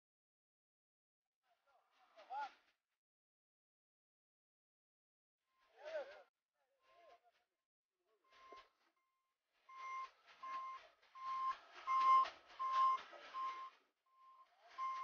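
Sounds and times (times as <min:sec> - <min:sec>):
electronic warning beeper: 0:09.7 - 0:15.0.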